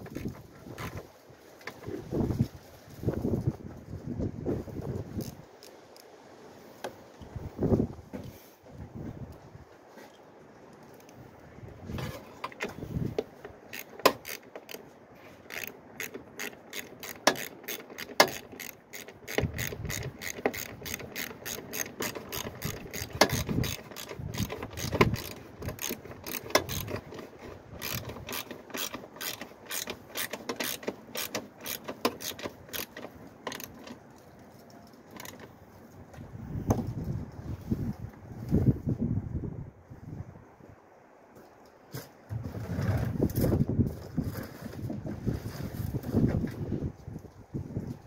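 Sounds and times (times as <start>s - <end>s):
socket ratchet clicking: 13.7s - 14.8s, 15.5s - 34.0s.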